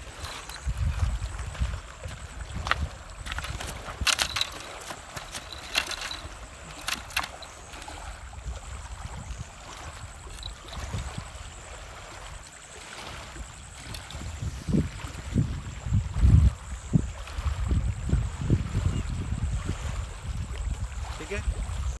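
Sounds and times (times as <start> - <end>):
wind rumble on microphone: 0.0 - 22.0
pebbles clacking: 3.2 - 7.7.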